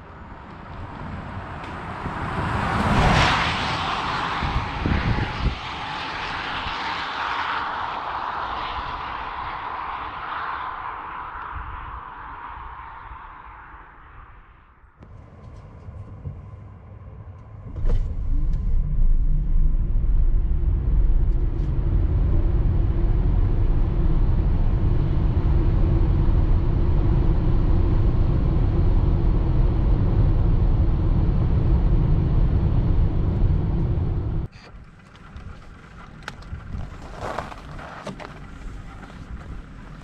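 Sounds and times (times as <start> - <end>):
electric van low rumble: 13.0 - 40.0.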